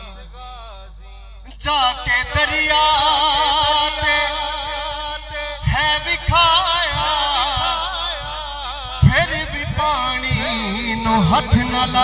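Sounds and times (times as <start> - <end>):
man singing: 0.0 - 12.0
low drum beats: 5.3 - 12.0.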